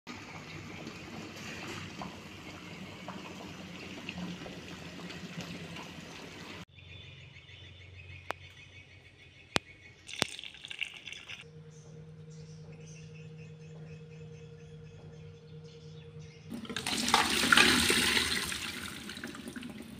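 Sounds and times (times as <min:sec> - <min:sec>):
running water rushing: 0:00.1 - 0:06.6
low hum: 0:11.3 - 0:17.2.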